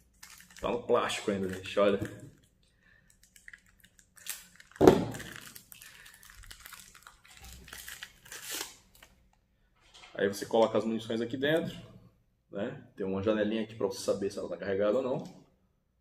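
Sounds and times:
plastic wrap crinkling and tearing: 0.0 - 9.3.

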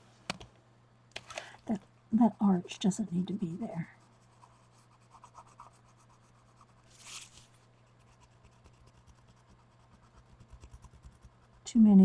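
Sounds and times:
faint steady hum: 0.0 - 12.0
soft scratching stroke: 3.8 - 11.6.

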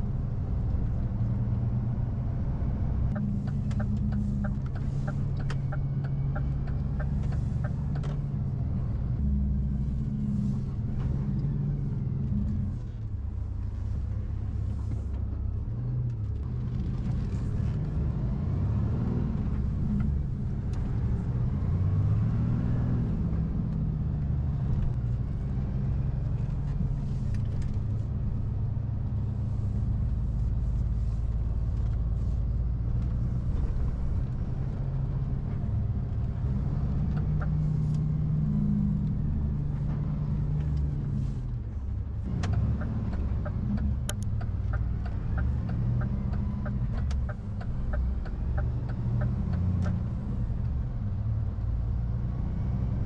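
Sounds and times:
road rumble: 0.0 - 53.0
truck diesel engine: 0.0 - 53.0
turn signal ticking: 3.1 - 9.8, 34.0 - 41.0, 42.0 - 52.0.

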